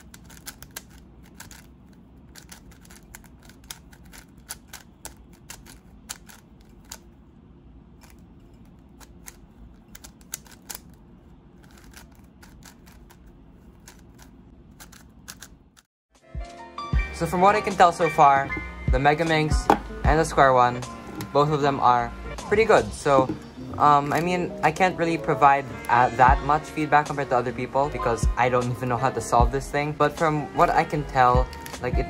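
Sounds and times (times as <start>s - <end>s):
speed cube clicking: 0.0s - 7.1s, 8.8s - 11.0s, 11.6s - 15.9s
low steady hum: 0.0s - 15.8s, 17.8s - 32.0s.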